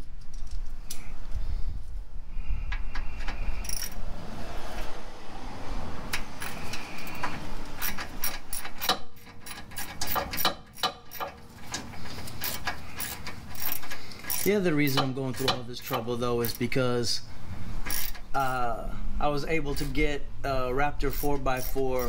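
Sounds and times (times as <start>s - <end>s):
metallic clatter of hand tools: 3.0s - 4.0s, 6.1s - 16.8s, 17.8s - 18.4s, 21.0s - 22.0s.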